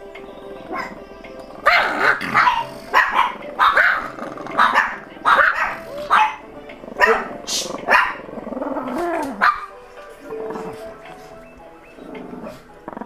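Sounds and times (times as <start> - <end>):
faint background music: 0.0 - 13.0
small dog barking: 0.7 - 1.0, 1.6 - 6.4, 7.0 - 9.7.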